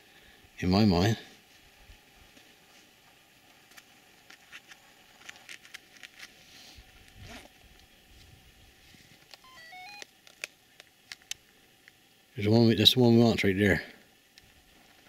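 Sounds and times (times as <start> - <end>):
electronic beeps rising in pitch: 9.4 - 10.0.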